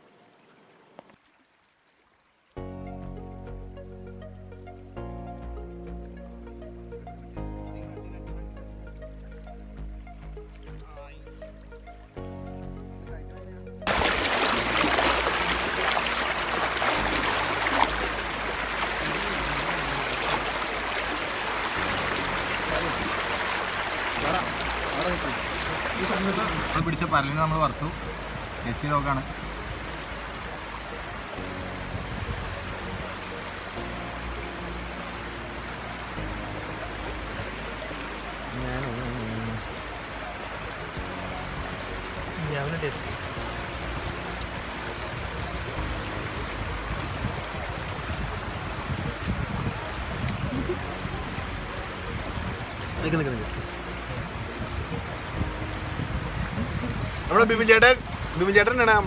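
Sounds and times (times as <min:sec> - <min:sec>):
feet splashing through water: 0:13.9 - 0:26.9
river water rushing over rocks: 0:13.9 - 0:59.0.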